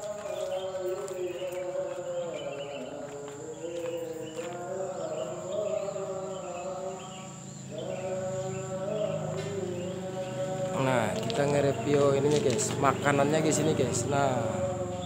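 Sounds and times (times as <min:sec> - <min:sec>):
person chanting held notes: 0:00.0 - 0:15.0.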